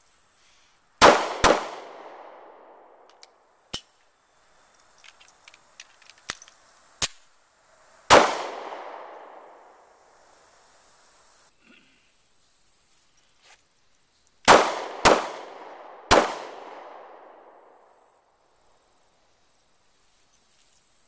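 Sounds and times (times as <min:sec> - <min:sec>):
pistol shots echoing: 0:01.0 - 0:03.0, 0:08.1 - 0:09.7, 0:14.5 - 0:17.6.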